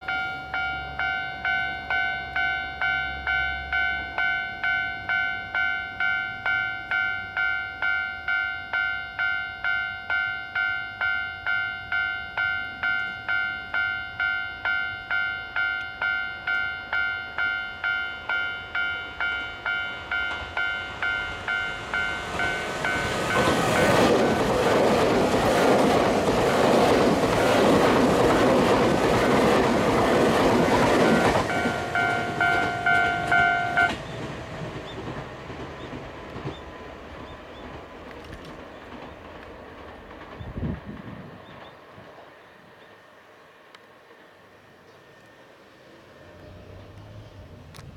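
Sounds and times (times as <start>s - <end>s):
level crossing bell ringing: 0.0s - 24.2s, 30.7s - 34.0s
electric train passing: 0.0s - 47.9s.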